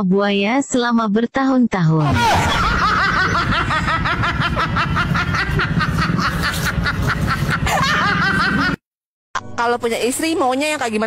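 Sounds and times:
laugh track chuckling: 2.2 - 8.8.

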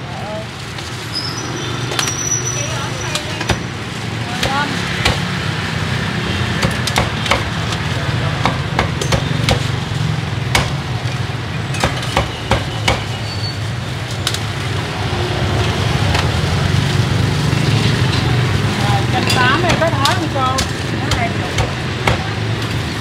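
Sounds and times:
street traffic hum: 0.0 - 23.0
cleaver chopping meat: 4.3 - 5.4, 6.5 - 9.7, 10.4 - 10.9, 11.8 - 13.2, 19.6 - 22.5.

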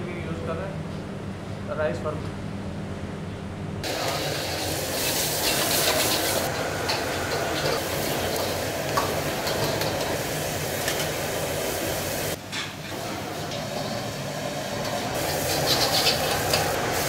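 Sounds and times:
oil sizzling in a wok: 3.8 - 17.0
ladle scraping and clinking pan: 15.2 - 16.8.

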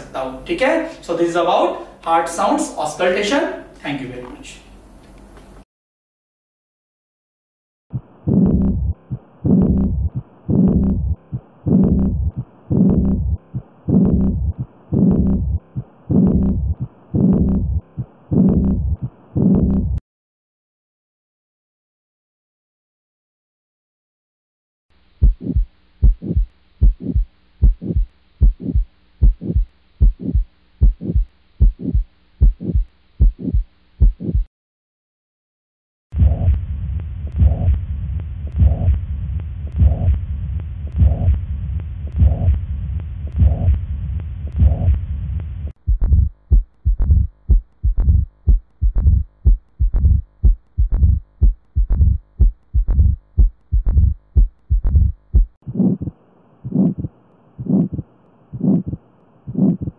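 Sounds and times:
heartbeat with murmur: 7.9 - 20.0, 25.2 - 34.5, 36.2 - 59.9.

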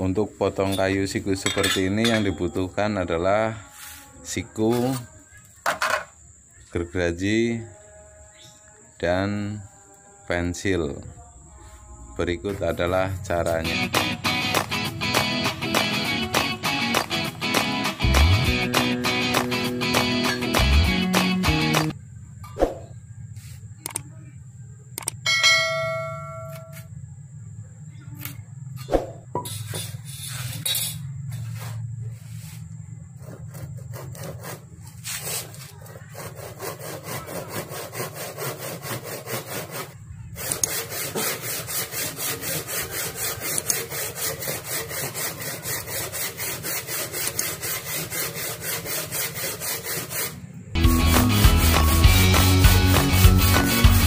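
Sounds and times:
hand saw cutting wood: 13.4 - 21.9, 33.2 - 50.4, 51.0 - 54.0
pencil scratching and tapping: 33.2 - 39.8, 43.4 - 44.4.

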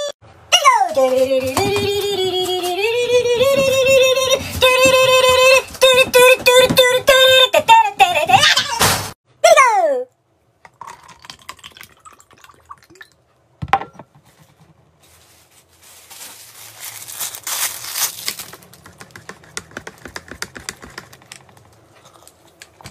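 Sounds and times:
liquid pouring into plastic cup: 10.7 - 13.2
straw wrapper crinkling: 15.0 - 19.0
straw stirring in cup: 18.8 - 22.7.

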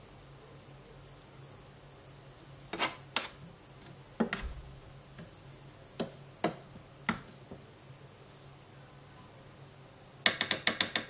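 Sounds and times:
faint low hum: 0.0 - 10.3.

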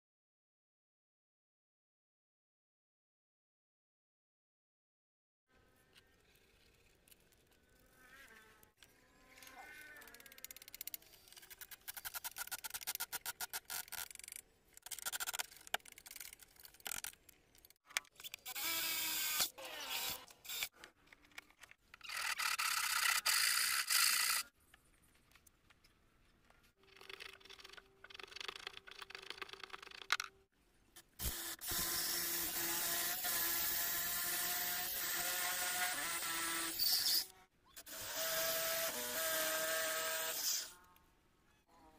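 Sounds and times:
saw cutting wood: 18.4 - 20.7, 22.0 - 24.5, 31.0 - 40.8
electric drill boring wood: 18.5 - 20.7, 31.2 - 40.7.

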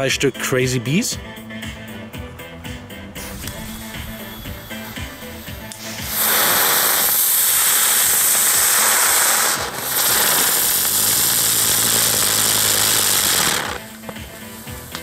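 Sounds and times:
ground spinner fireworks hissing: 3.2 - 15.0.

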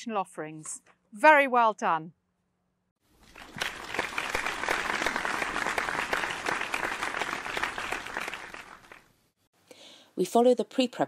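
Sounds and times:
audience applause: 3.2 - 9.1.

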